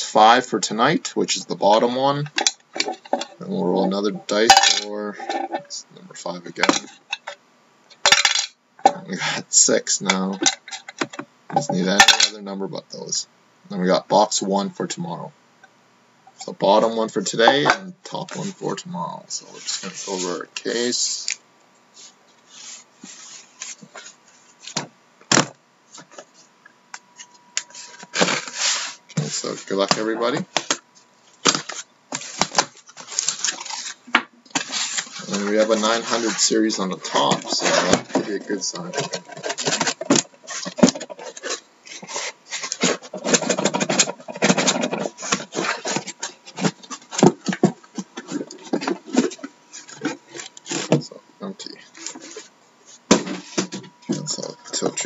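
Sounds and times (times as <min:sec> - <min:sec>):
cardboard scraping against boxes: 0:27.7 - 0:30.0, 0:34.6 - 0:51.0.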